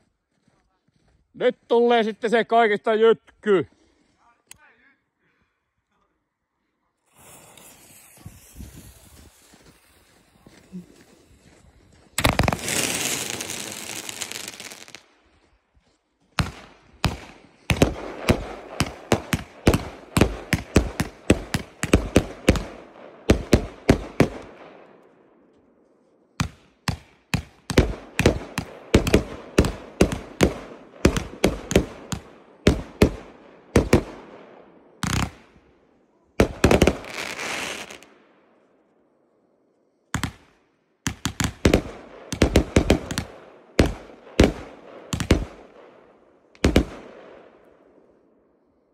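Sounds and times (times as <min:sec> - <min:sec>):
firework cracks: 0:07.0 - 0:11.4, 0:12.1 - 0:15.2, 0:16.4 - 0:24.6, 0:26.4 - 0:34.2, 0:35.0 - 0:35.7, 0:36.4 - 0:38.1, 0:40.2 - 0:45.8, 0:46.6 - 0:47.2
firework fuse hissing: 0:07.0 - 0:11.4, 0:12.2 - 0:15.0, 0:37.0 - 0:38.0.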